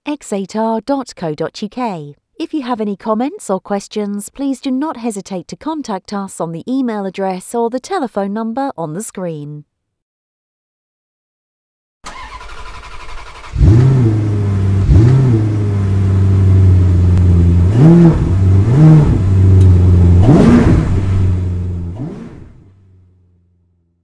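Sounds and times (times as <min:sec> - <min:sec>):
car engine starting and idling: 0:12.0 - 0:24.0
car engine revving: 0:12.1 - 0:23.9.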